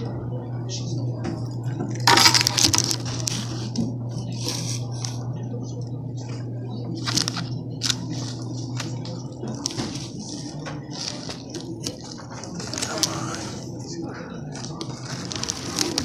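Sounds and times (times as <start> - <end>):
steady low hum: 0.0 - 16.0
plastic bag rustling: 7.0 - 13.8, 14.4 - 16.0.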